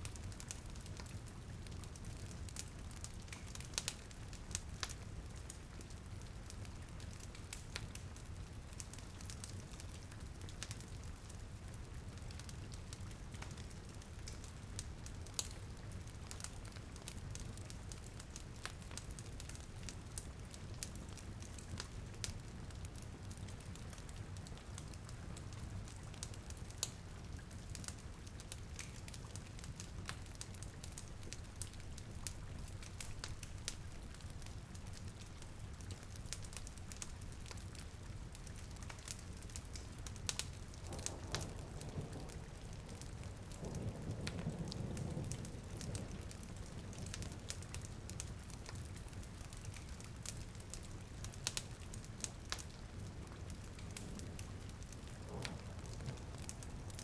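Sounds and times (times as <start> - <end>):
crackling fireplace: 0.0 - 57.0
steady rain: 0.0 - 57.0
sharp pops from fire: 0.1 - 5.6, 25.6 - 50.6, 51.2 - 57.0.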